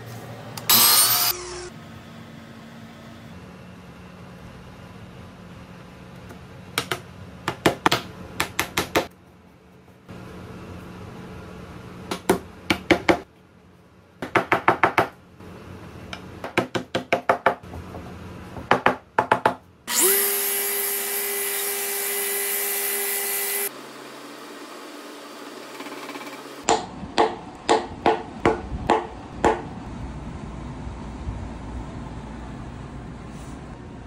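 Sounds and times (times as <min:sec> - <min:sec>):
orbital sander whining: 0:00.7 - 0:01.7, 0:19.9 - 0:23.7.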